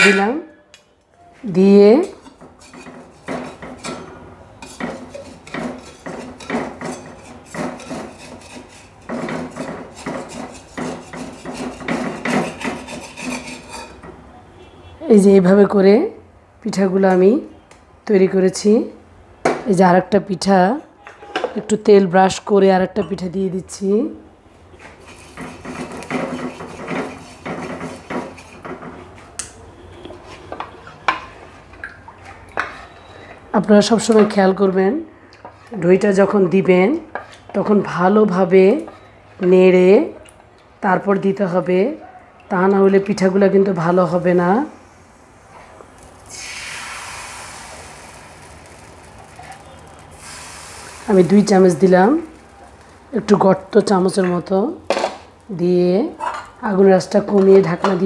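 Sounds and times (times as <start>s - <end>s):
metal spatula scraping earthenware pan: 0.0s - 0.6s, 2.0s - 14.1s, 24.8s - 29.1s.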